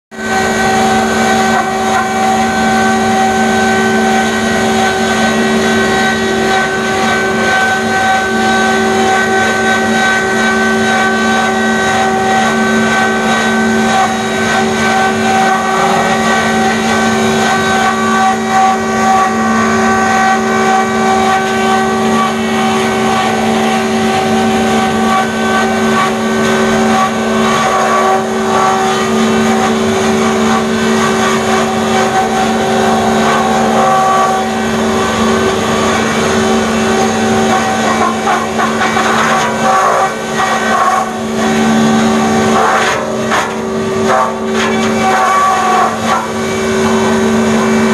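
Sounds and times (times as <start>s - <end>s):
sawdust machine humming and whining: 0.1s - 47.9s.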